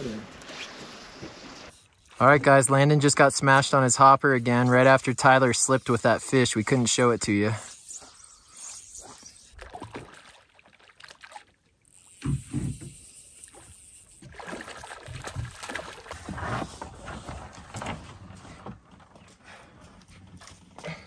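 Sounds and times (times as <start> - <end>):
water lapping against boat hull: 9.5 - 19.0.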